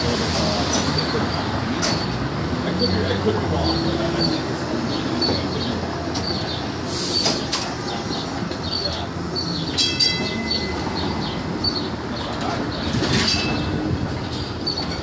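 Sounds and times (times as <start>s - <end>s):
streetcar rumbling on rails: 0.0s - 15.0s
high squeal from wheels: 3.6s - 15.0s.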